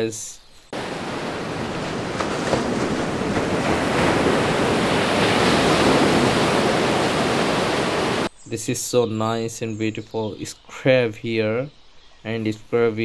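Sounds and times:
wind: 0.0 - 13.0
surf washing onto sand: 0.8 - 8.3.

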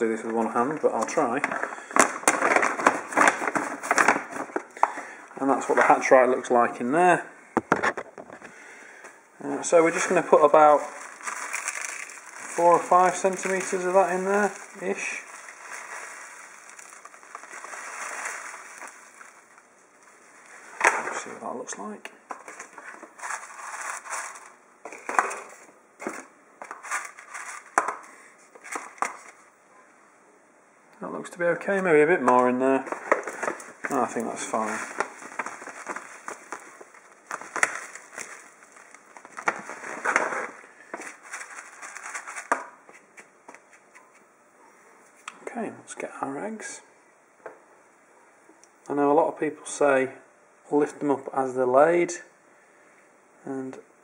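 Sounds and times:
granules crackling on plastic: 0.3 - 5.0, 9.7 - 21.3, 32.3 - 44.0
granules pouring into tub: 9.8 - 19.6.

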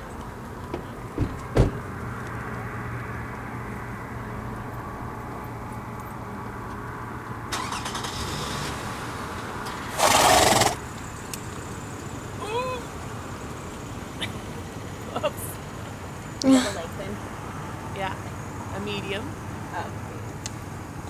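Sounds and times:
sharp thumps: 0.7 - 2.0.

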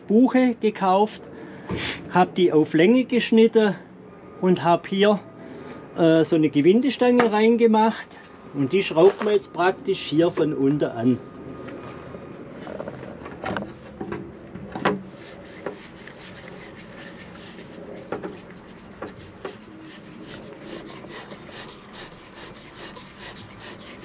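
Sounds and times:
wood scraping on wood: 15.0 - 24.0.

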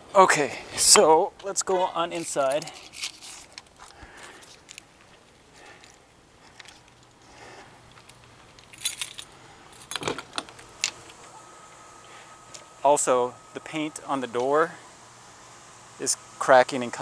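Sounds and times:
keys jangling: 8.5 - 10.2.

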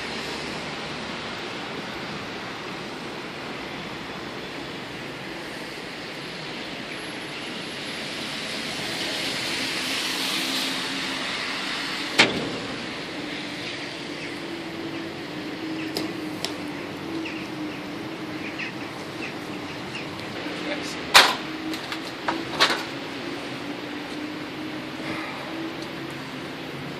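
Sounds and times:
car tyre hiss on slush: 7.6 - 12.1.

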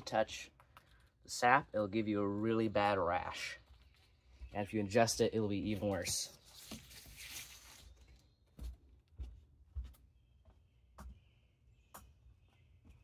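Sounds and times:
footsteps on wooden deck: 8.0 - 13.0.

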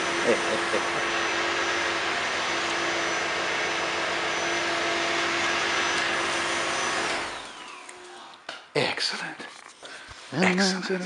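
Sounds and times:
fan whirring with hum: 0.0 - 8.1.

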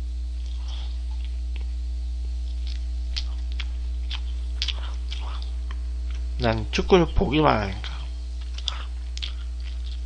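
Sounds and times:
electrical mains hum: 0.0 - 10.0
man chewing food: 0.2 - 7.0, 7.6 - 10.0
wet mouth clicks and smacks: 2.4 - 6.3.

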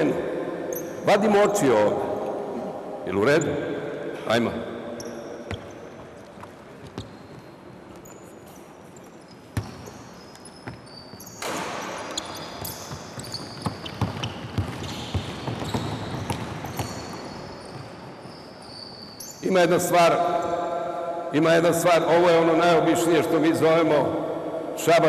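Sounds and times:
sneakers squeaking: 0.7 - 1.1, 4.8 - 19.5
basketball bouncing: 9.5 - 10.0, 11.4 - 17.9.

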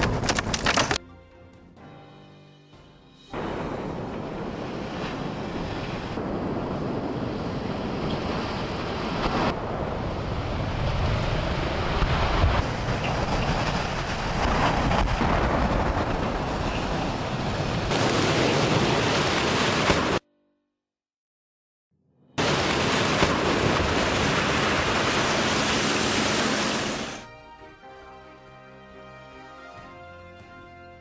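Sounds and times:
wind buffeting microphone: 3.4 - 19.1
tower collapsing roar: 3.4 - 19.7.

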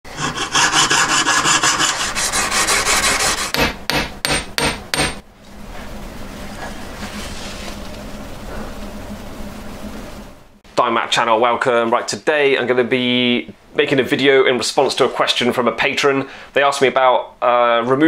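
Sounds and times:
piercing saw cutting metal: 0.1 - 3.7
hammer striking metal ring: 3.5 - 5.2.

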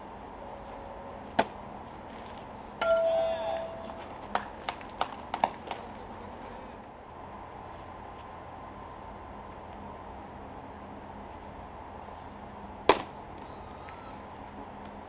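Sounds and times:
short ringing chime tone: 2.8 - 4.2.

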